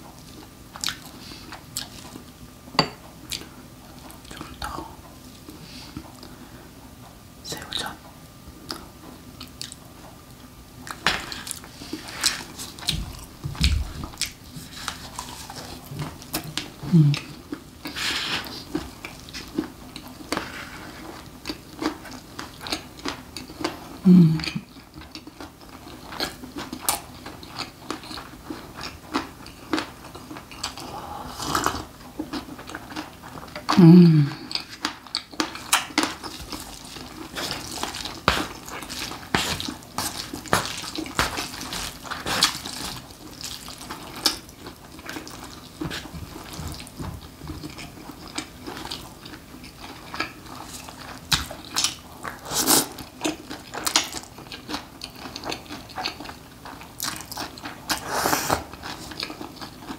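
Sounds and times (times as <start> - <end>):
low vocal sounds: 16.8 - 17.4, 24.0 - 24.6, 33.8 - 34.5.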